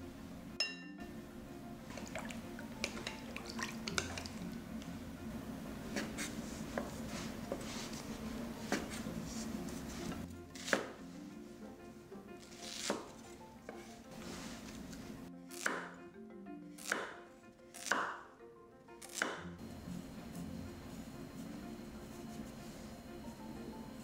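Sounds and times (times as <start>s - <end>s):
knife cutting on wooden board: 5.9s - 11.0s, 12.4s - 16.0s, 16.8s - 17.2s, 17.8s - 18.2s.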